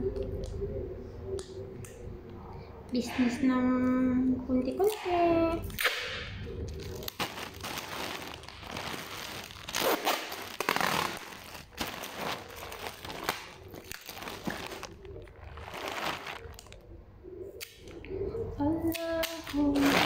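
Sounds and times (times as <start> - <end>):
plastic mailer bag crinkling: 6.8 - 16.8
packing tape ripping off roll: 7.0 - 16.7.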